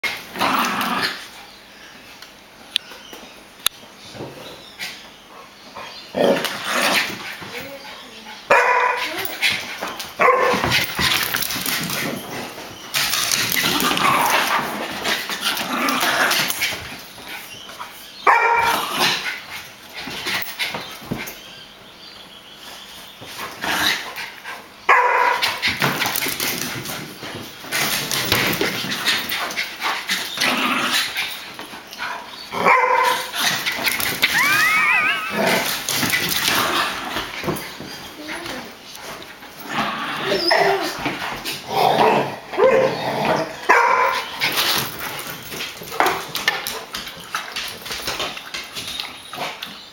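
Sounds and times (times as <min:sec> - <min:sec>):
dogs growling: 0:00.0 - 0:01.4, 0:05.8 - 0:07.5, 0:10.6 - 0:16.8, 0:18.6 - 0:19.5, 0:23.6 - 0:24.4, 0:27.7 - 0:46.4
dogs scuffling: 0:04.1 - 0:21.7, 0:22.5 - 0:49.9
dogs barking: 0:08.4 - 0:09.4, 0:10.1 - 0:11.0, 0:18.2 - 0:19.2, 0:24.6 - 0:26.0, 0:32.1 - 0:36.8, 0:41.9 - 0:44.6
dog whining: 0:34.0 - 0:36.1, 0:40.2 - 0:41.0.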